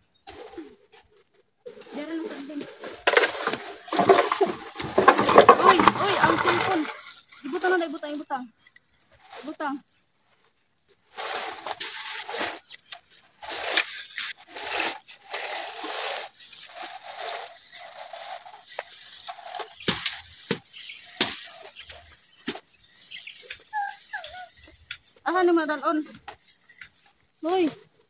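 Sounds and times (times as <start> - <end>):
dry leaves rustling and crunching: 1.6 - 8.4.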